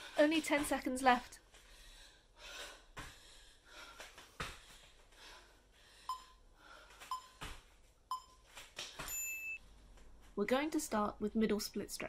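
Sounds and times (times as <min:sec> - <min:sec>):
heavy breathing: 0:01.6 - 0:07.1
timer beeps: 0:06.1 - 0:06.4, 0:07.1 - 0:07.4, 0:08.1 - 0:08.4
bare feet thudding on foam mat: 0:07.3 - 0:07.9.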